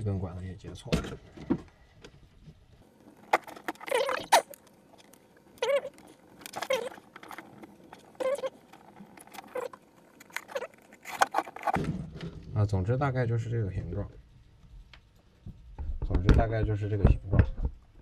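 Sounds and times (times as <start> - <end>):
plastic tubing squeaking: 3.2 - 11.8.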